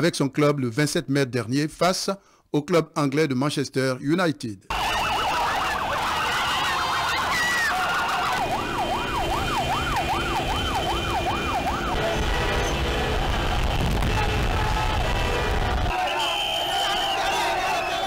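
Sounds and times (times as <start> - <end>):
electronic siren wailing: 4.7 - 18.0
street noise: 4.7 - 18.0.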